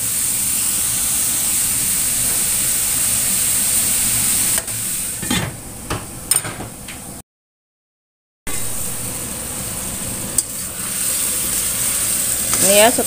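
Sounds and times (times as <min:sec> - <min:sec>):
chicken sizzling in a wok: 0:00.0 - 0:05.3, 0:08.5 - 0:13.0.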